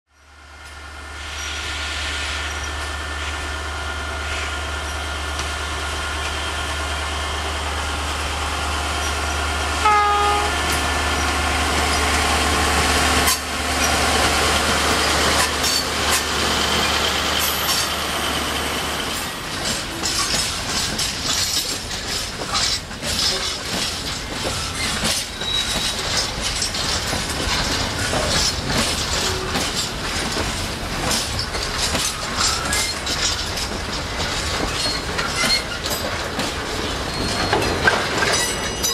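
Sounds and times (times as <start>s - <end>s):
freight train rumbling past: 0.2s - 38.9s
train horn blast: 9.8s - 10.8s
wheels clattering over rail joints: 10.6s - 38.9s.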